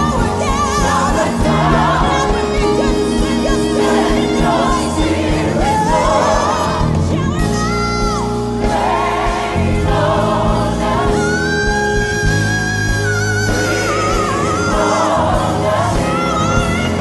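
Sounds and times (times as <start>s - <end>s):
choir singing: 0.0s - 17.0s
instrumental backing: 0.0s - 17.0s.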